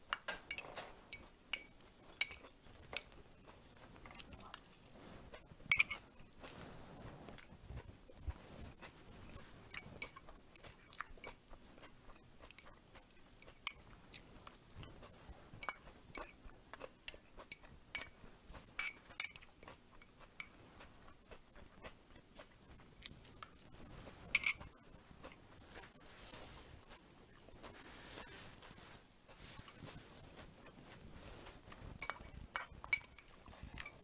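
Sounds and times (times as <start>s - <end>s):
metal spoon clinking on glass bowl: 0.1s - 2.5s, 5.7s - 6.0s, 9.7s - 11.4s, 15.6s - 16.3s, 17.5s - 18.2s, 18.8s - 20.5s, 24.3s - 24.7s, 32.0s - 34.0s
chewing: 0.2s - 34.0s.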